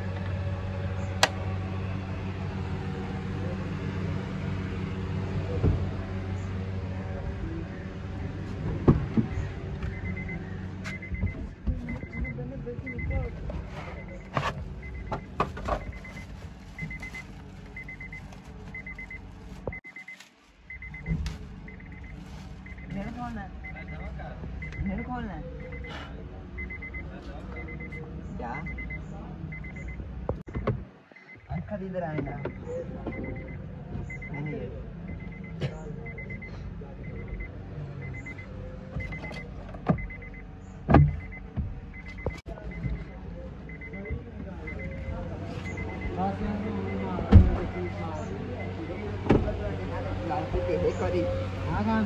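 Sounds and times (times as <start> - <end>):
electronic beeping pips: 9.3 - 21.1, 23.6 - 26.0, 28.6 - 30.0, 32.3 - 40.4, 41.0 - 49.1
plastic bag crinkling: 16.2 - 20.7.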